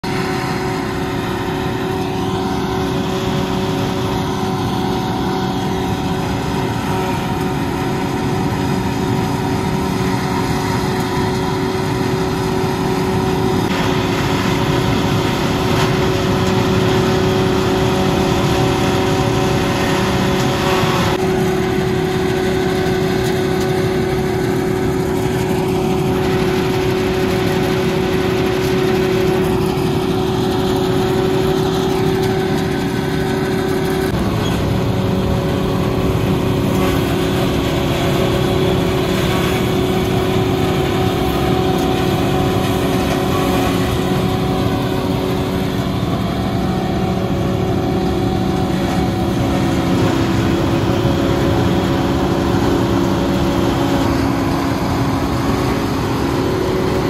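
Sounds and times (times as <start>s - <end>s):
harvester and tractor engines droning: 0.0s - 57.0s.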